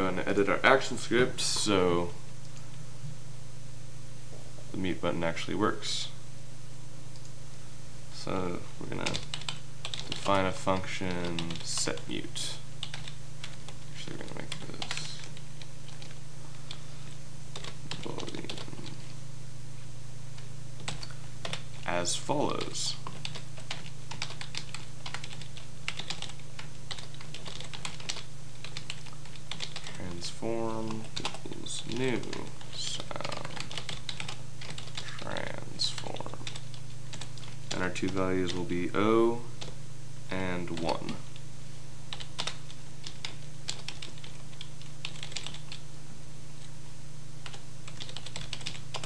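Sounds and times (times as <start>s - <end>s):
steady low hum: 0.0s - 49.0s
computer keyboard typing: 9.0s - 12.2s, 12.8s - 16.8s, 17.5s - 19.1s, 20.8s - 21.9s, 22.5s - 30.2s, 30.8s - 38.6s, 42.1s - 45.8s, 47.4s - 49.0s.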